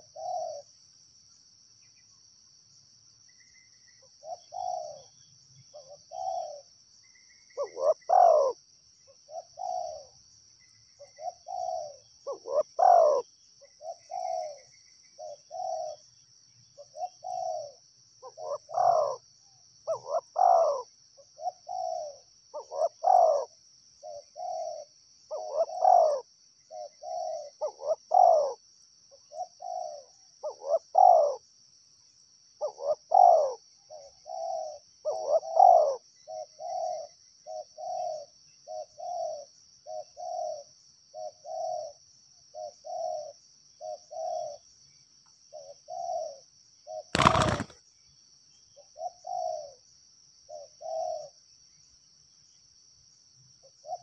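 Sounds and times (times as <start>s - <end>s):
dove cooing: 0.0s - 0.7s, 4.2s - 6.7s, 7.6s - 8.6s, 9.3s - 10.2s, 11.0s - 16.0s, 16.8s - 19.2s, 19.9s - 28.6s, 29.3s - 31.4s, 32.6s - 44.6s, 45.5s - 47.8s, 49.0s - 49.8s, 50.5s - 51.3s.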